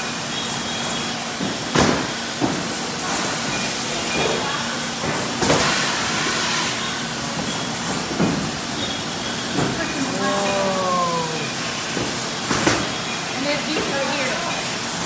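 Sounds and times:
bottling machine running: 0.0s - 15.0s
hiss: 2.0s - 4.6s, 5.4s - 7.2s.

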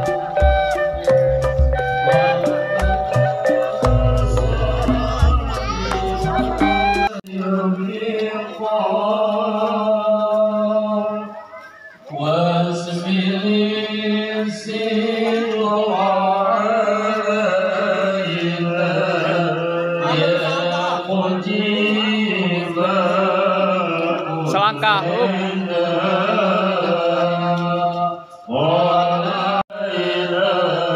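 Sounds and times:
person chanting a melody: 3.0s - 11.4s.

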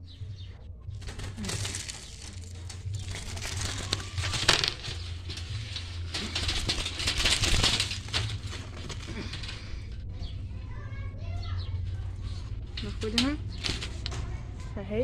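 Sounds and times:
wire trap rustling and scraping: 1.0s - 10.4s, 12.2s - 14.4s.

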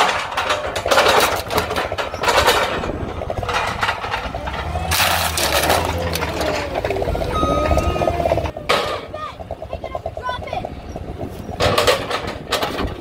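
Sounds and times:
crunching and scraping: 0.0s - 7.1s
diesel engine under load: 0.0s - 13.0s.

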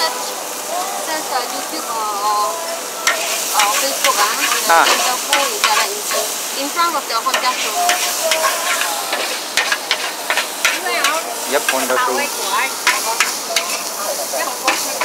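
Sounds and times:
noodles sizzling in a wok: 0.0s - 15.0s
metal spatula scraping a wok: 3.0s - 6.6s, 7.2s - 15.0s.

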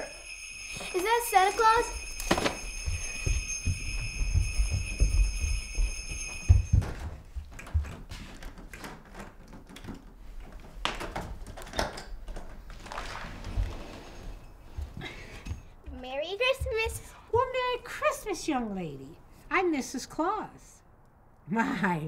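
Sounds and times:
bell-like ringing: 0.0s - 7.2s
thumping footsteps: 1.5s - 8.7s, 14.6s - 17.9s
door knob turning and door opening: 7.4s - 12.9s.

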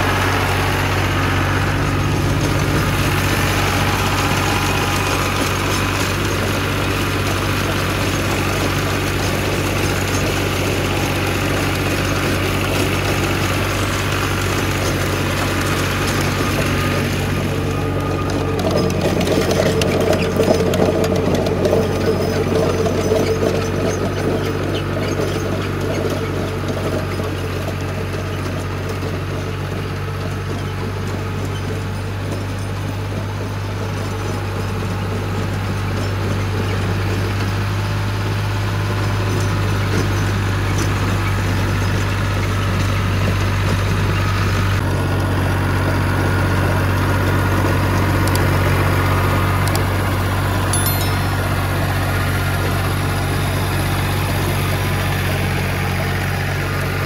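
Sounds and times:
tractor diesel engine running: 0.0s - 57.0s.

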